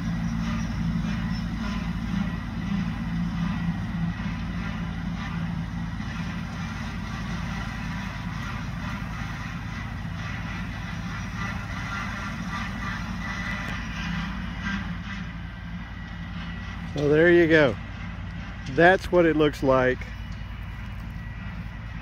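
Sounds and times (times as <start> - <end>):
faint steady whine: 0.0 - 22.0
tractor engine running: 0.0 - 22.0.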